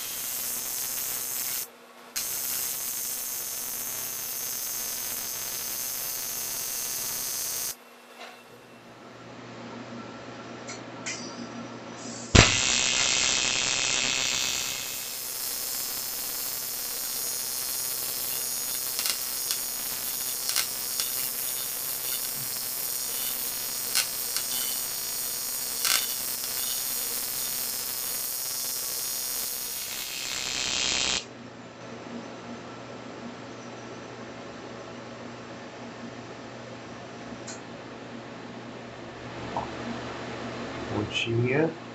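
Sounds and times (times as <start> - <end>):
welding arc buzzing: 0.0 - 7.8, 12.3 - 31.3
arc striking crack: 12.4 - 12.7.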